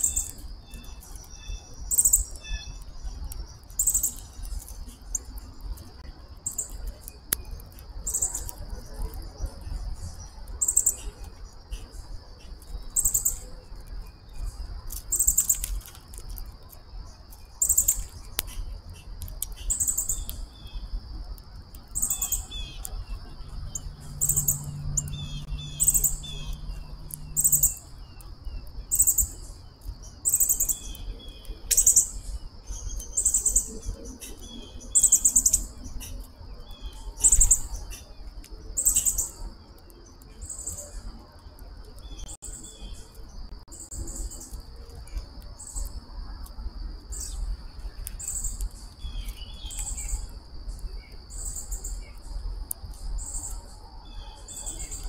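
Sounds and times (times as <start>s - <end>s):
birds chirping: 0.0s - 5.7s, 6.4s - 16.3s, 17.0s - 21.0s, 21.7s - 41.2s
high insect drone: 0.0s - 55.0s
very high-pitched calls: 23.6s - 27.9s.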